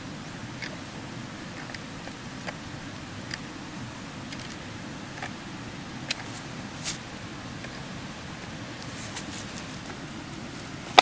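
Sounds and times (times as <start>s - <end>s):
low background rumble: 0.0s - 11.0s
dry leaves crackling: 8.9s - 11.0s.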